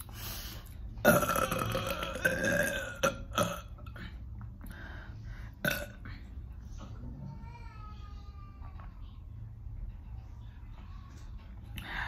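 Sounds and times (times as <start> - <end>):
woman burping loudly: 1.0 - 4.0, 5.6 - 6.1.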